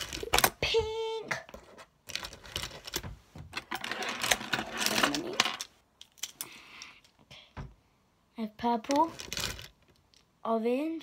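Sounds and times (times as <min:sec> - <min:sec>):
plastic pens clicking and rattling: 0:03.6 - 0:07.2.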